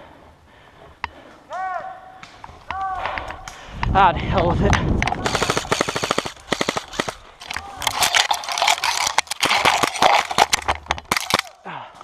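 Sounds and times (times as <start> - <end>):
branches rustling and crackling: 4.9 - 11.5
airsoft guns firing: 5.1 - 11.6.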